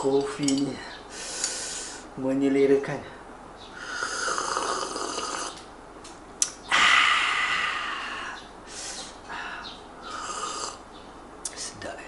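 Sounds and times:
person slurping coffee: 3.9 - 5.6.

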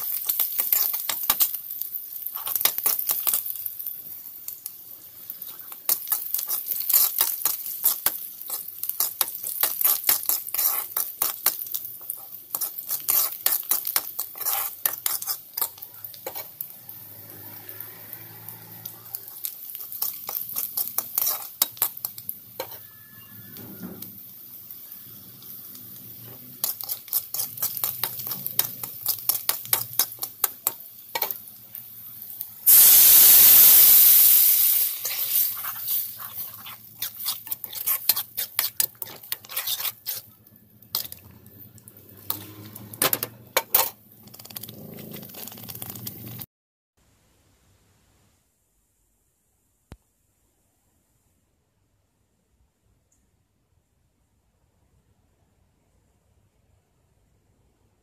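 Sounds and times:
faint frying sizzle: 0.0 - 46.5
spoon scraping metal pan: 5.4 - 17.7, 18.3 - 24.2, 25.4 - 31.4, 35.0 - 45.9.

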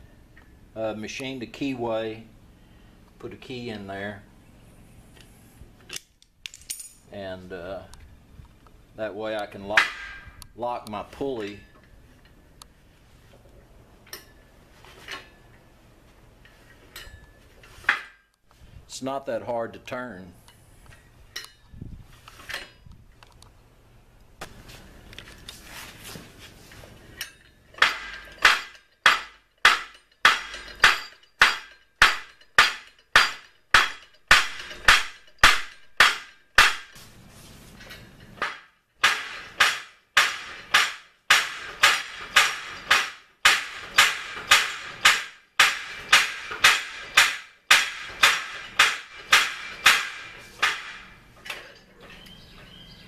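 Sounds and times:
power hammer striking anvil: 27.2 - 36.9, 38.4 - 51.2.

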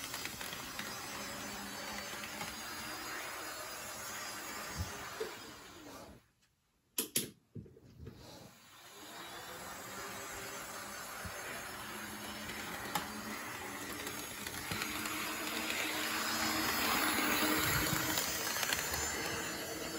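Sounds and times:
model train motor whir: 0.0 - 6.2, 8.2 - 19.9
wheels rolling on rails: 10.9 - 19.9.

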